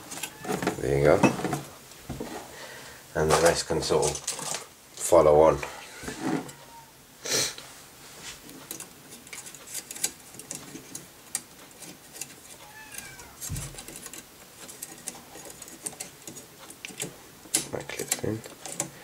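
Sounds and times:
metal clips clicking: 13.8 - 18.9.

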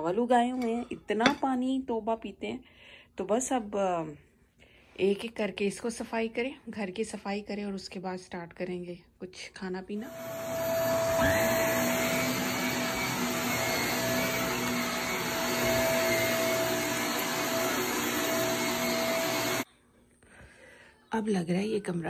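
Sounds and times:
vacuum cleaner running: 10.0 - 19.7.

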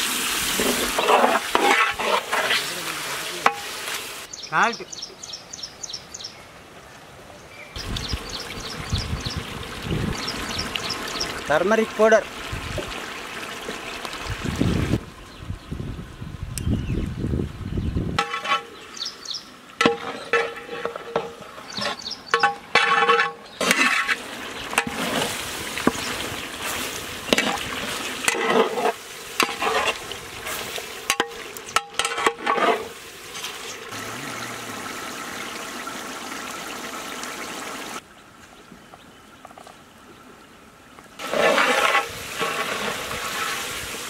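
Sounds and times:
chicken frying sizzle: 0.0 - 4.3, 7.8 - 15.0, 24.0 - 38.0, 41.2 - 44.0
metal ladle scraping pot: 0.4 - 2.8, 18.2 - 18.9, 19.8 - 33.8, 41.2 - 43.7.

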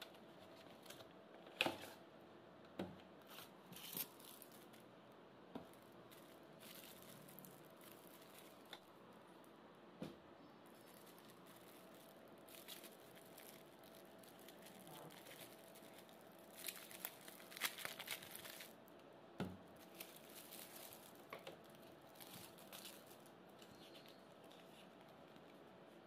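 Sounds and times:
plastic bag crinkling: 3.2 - 4.9, 5.6 - 9.5, 10.6 - 18.8, 19.7 - 26.0.

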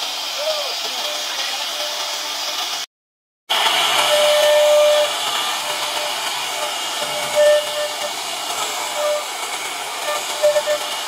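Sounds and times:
router bit cutting wood: 3.5 - 11.0.

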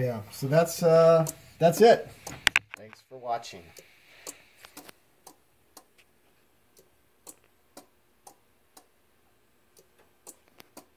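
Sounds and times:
faint relay clicks: 6.7 - 8.9, 9.7 - 10.9.

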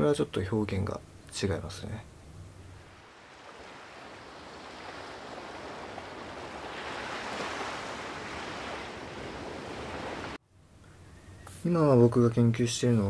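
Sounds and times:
sea surf washing on shore: 2.6 - 10.4.

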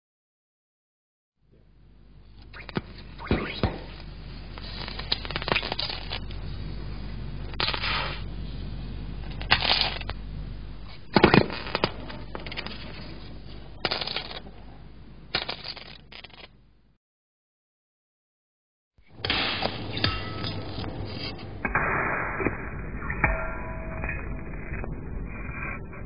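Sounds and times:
sharp crackling pops: 2.4 - 6.4, 7.5 - 8.3, 11.0 - 13.0.

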